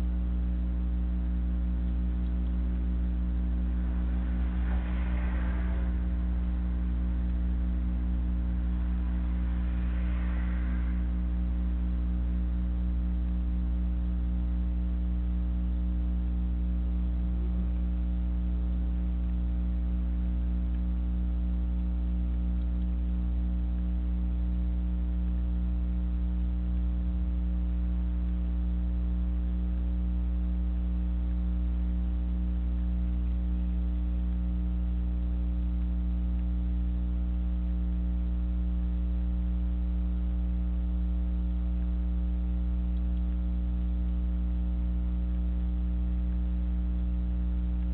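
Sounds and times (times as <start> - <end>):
electrical mains hum: 0.0 - 47.9
faint hiss: 1.7 - 13.7.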